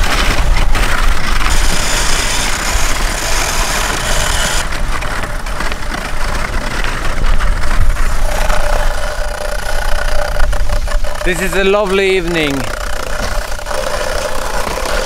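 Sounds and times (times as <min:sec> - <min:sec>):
sled runners hissing on snow: 0:00.0 - 0:05.3
wind rumbling on microphone: 0:00.0 - 0:15.0.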